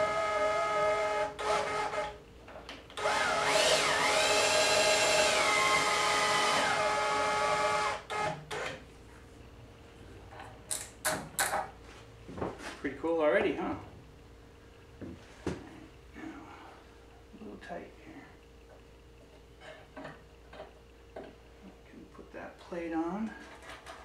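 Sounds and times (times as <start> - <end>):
cordless drill motor whine: 0.0 - 2.2, 3.0 - 8.8.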